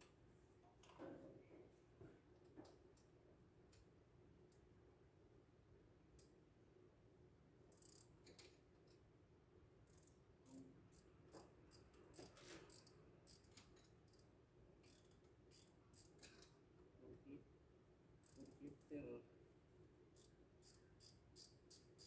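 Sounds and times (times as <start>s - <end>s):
faint clicks of tools: 7.7s - 9.1s, 9.9s - 16.6s.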